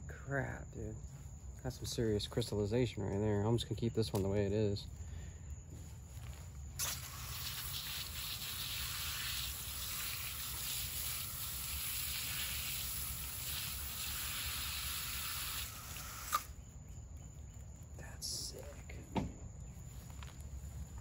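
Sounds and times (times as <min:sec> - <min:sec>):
hose spraying water: 0:06.8 - 0:16.5.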